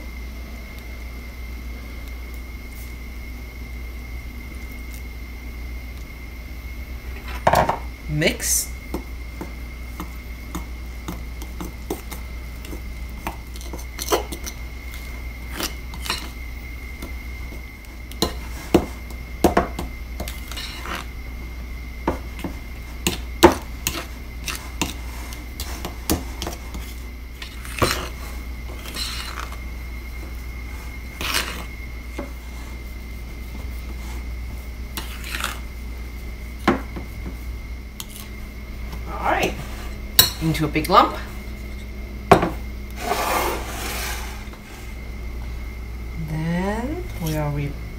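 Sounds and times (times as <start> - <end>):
steady low hum: 0.0 - 47.9
fork scraping dough in bowl: 9.4 - 16.4, 17.0 - 21.1, 22.3 - 35.7, 38.0 - 38.3, 42.9 - 44.9.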